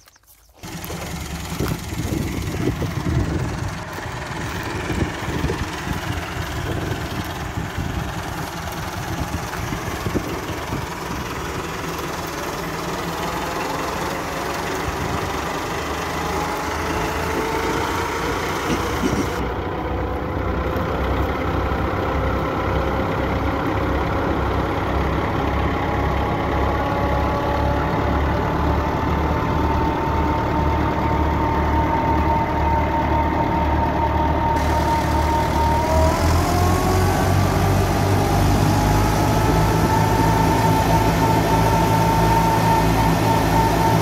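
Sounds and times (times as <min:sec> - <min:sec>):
tractor diesel engine rumble: 0:00.0 - 0:44.0
thresher whine rising in pitch: 0:00.6 - 0:19.5, 0:29.7 - 0:44.0.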